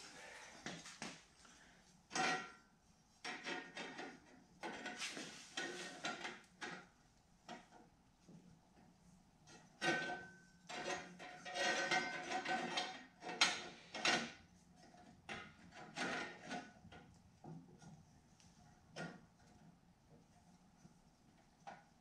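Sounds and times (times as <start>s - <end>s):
metal plate clinking and scraping: 9.8s - 14.3s.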